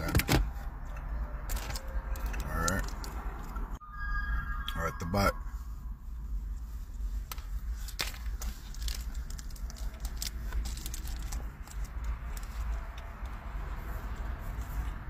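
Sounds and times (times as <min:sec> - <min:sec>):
cookie crunching and chewing: 0:07.9 - 0:15.0.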